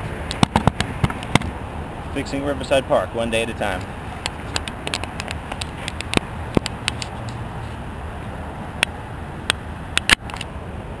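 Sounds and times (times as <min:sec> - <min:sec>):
outdoor background rumble: 0:00.0 - 0:11.0
sharp clicks and clacks: 0:03.8 - 0:07.4.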